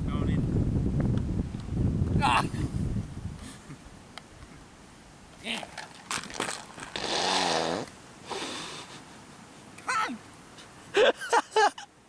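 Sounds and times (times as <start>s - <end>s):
men's short loud exclamations: 2.2s - 2.6s.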